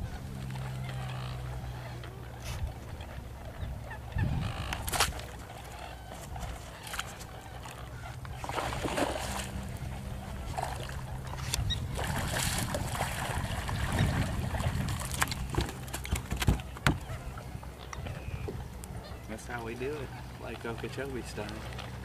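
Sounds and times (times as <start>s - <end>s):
low steady rumble: 0.0s - 22.0s
sharp knocks on boat: 13.8s - 17.2s.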